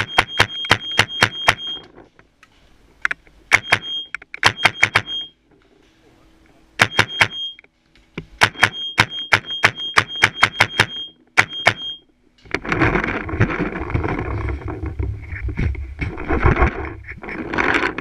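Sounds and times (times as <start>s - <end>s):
paintball marker firing: 8.4s - 11.9s.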